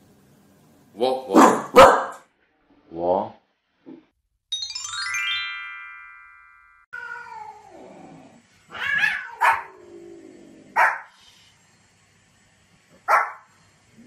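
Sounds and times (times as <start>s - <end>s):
small dog barking: 1.3s - 2.2s, 8.8s - 9.8s, 10.7s - 11.1s, 13.0s - 13.5s
bright chime: 4.5s - 6.9s.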